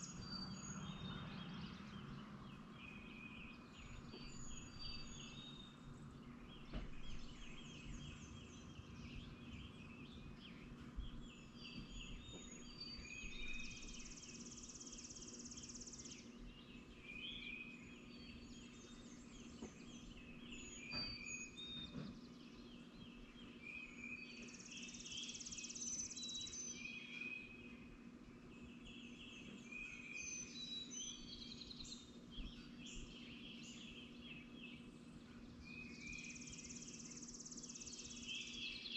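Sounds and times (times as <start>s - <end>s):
faint low hum: 0.0s - 38.9s
songbirds chirping and singing: 0.0s - 38.9s.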